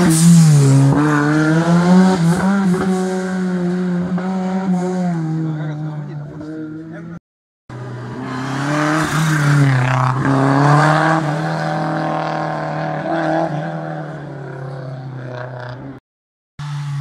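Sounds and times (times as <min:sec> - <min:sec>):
rally car accelerating: 0:00.0 - 0:16.0.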